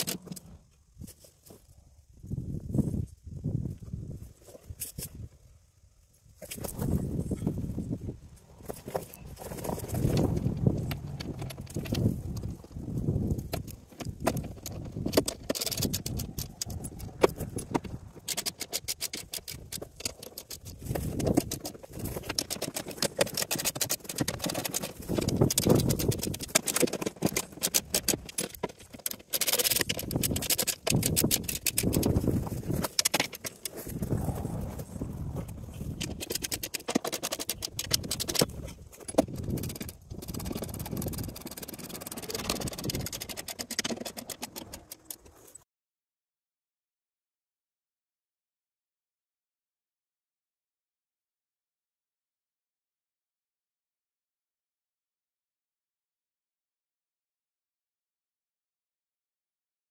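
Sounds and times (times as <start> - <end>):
hand tools clicking and scraping: 0.0 - 1.7, 8.6 - 45.6
gravel shifting: 6.3 - 45.6.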